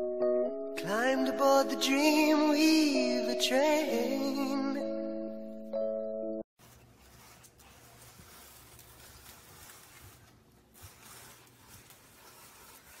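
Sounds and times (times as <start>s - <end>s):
paper bag crinkling: 6.6s - 13.0s.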